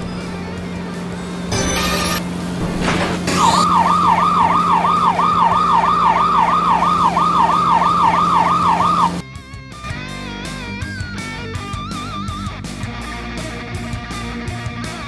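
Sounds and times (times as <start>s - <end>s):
electronic siren wailing yelp: 3.3s - 9.2s.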